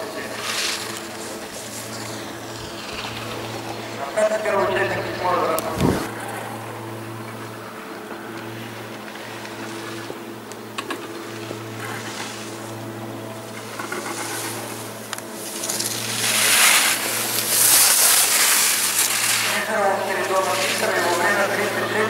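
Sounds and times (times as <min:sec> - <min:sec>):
skis carving on snow: 0:00.0 - 0:06.1, 0:10.8 - 0:22.0
low mechanical hum: 0:00.0 - 0:22.0.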